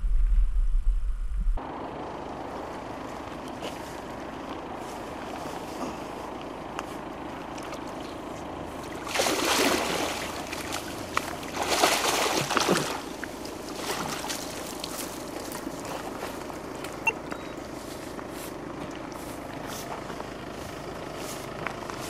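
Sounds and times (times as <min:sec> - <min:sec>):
water splashing and sloshing: 0:03.1 - 0:17.1.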